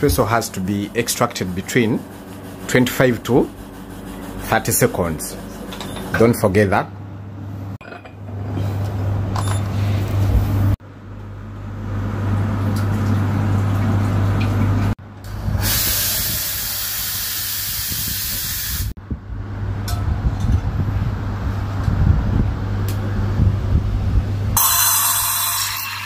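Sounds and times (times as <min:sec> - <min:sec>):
steady low hum: 0:00.0 - 0:15.6
steam wand hissing: 0:15.5 - 0:18.9.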